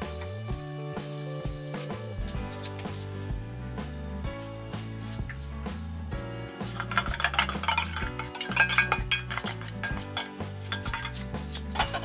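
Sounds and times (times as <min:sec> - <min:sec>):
background music: 0:00.0 - 0:12.0
metal bowl clinking and scraping: 0:06.6 - 0:12.0.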